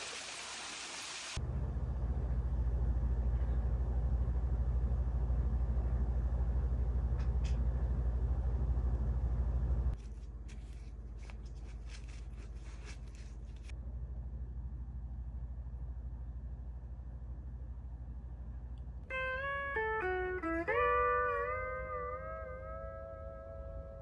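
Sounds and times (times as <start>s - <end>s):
low hum: 1.4s - 20.5s.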